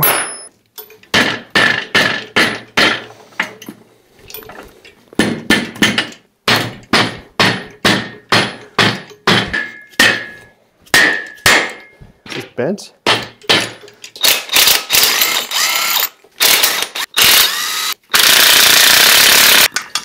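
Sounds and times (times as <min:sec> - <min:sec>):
hammer striking metal: 0:00.0 - 0:00.5, 0:05.2 - 0:12.0.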